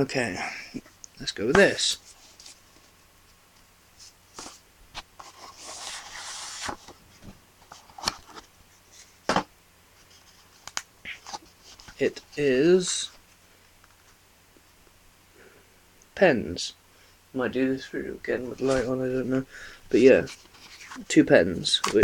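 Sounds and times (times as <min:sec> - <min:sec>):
box lid sliding scrape: 0:05.2 - 0:06.9.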